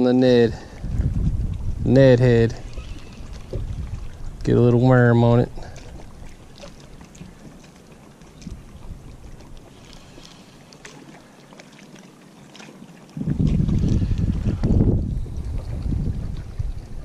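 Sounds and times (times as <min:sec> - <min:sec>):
wind buffeting microphone: 0:00.4 - 0:07.5, 0:08.3 - 0:09.7, 0:13.1 - 0:17.0.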